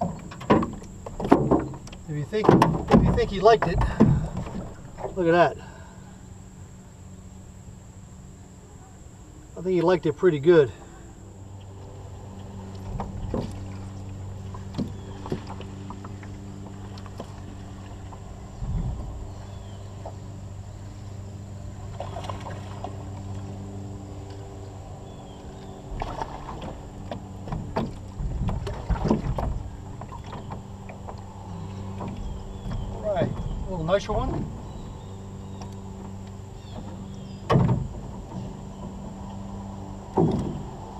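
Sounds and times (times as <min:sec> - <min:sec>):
footsteps and gear knocking on boat hull: 0:00.0 - 0:04.8, 0:26.5 - 0:31.3
steady low hum: 0:00.0 - 0:40.9.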